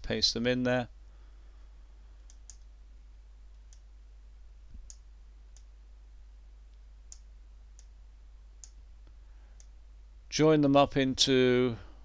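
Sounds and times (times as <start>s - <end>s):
computer mouse clicks: 2.2s - 2.7s.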